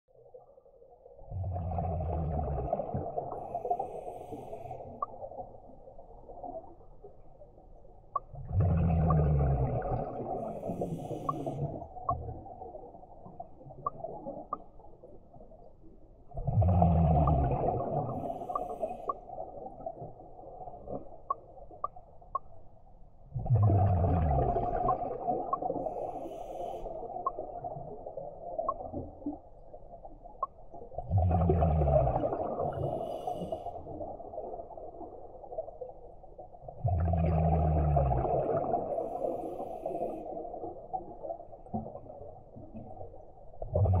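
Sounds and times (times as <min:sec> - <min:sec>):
exhaled bubbles gurgling: 0:00.1 - 0:22.3, 0:23.2 - 0:44.0
diver breathing through regulator: 0:03.4 - 0:05.0, 0:10.4 - 0:11.8, 0:18.1 - 0:19.2, 0:25.8 - 0:27.0, 0:32.7 - 0:33.9.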